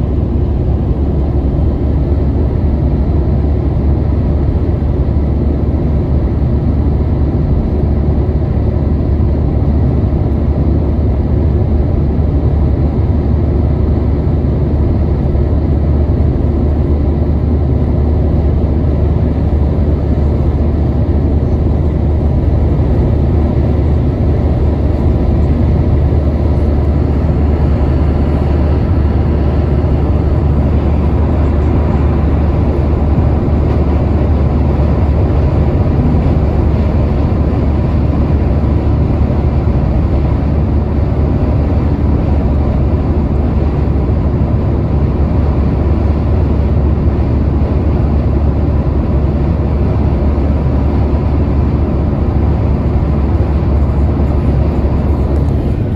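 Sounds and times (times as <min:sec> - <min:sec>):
road and engine rumble inside car: 0:00.0 - 0:55.9.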